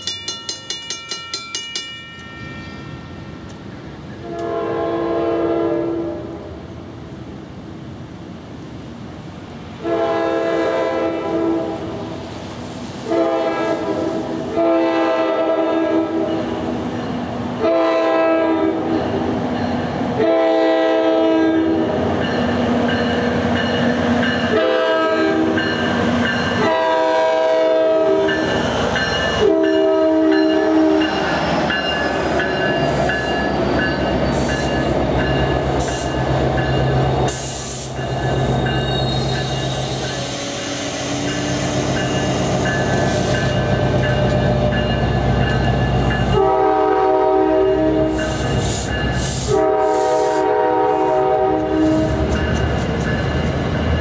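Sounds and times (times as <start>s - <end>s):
locomotive horn blasts: 4.2s - 6.5s, 9.8s - 12.0s, 13.0s - 16.3s, 17.6s - 18.9s, 20.2s - 22.0s, 24.5s - 25.6s, 26.6s - 28.4s, 29.3s - 31.1s, 46.3s - 48.3s, 49.4s - 52.2s.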